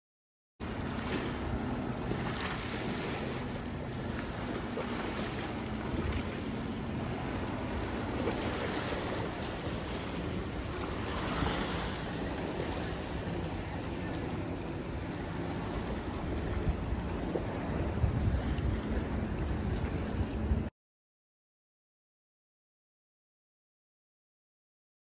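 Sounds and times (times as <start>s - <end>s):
waves washing against rocks: 4.2s - 19.0s
wind on microphone: 4.3s - 20.7s.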